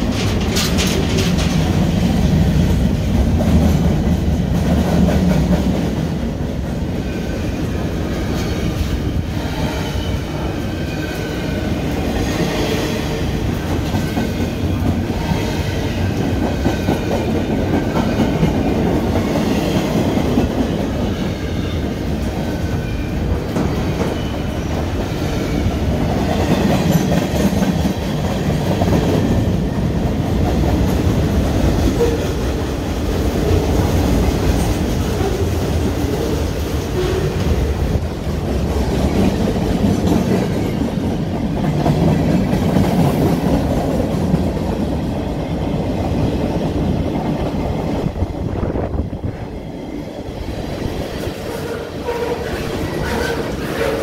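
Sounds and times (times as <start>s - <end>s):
wheels clacking over rail joints: 0.0s - 6.1s
freight train rumbling past: 0.0s - 54.0s.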